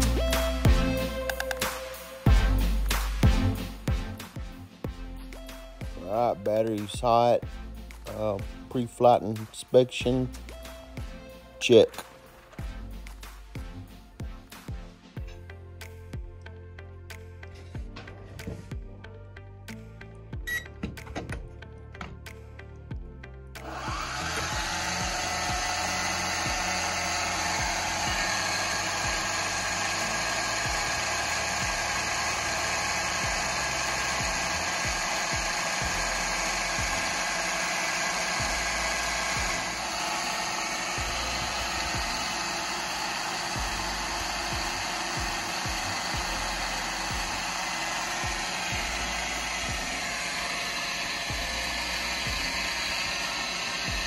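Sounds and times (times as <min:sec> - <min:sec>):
drone propellers whining: 0:00.0 - 0:04.4, 0:23.6 - 0:54.0.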